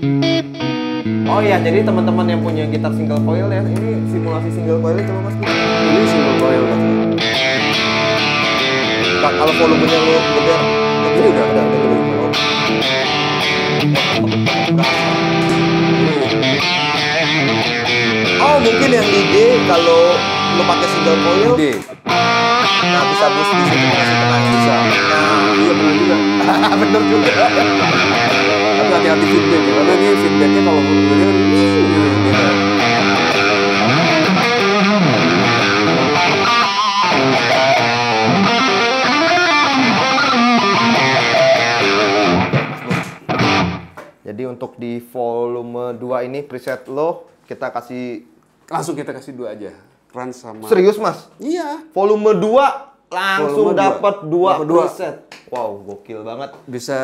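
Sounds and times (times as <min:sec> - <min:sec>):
distorted electric guitar: 0:00.0 - 0:44.2.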